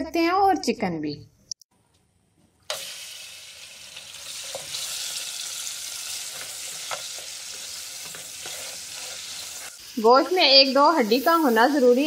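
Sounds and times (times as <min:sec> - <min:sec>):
meat sizzling in a pot: 0:02.7 - 0:12.0.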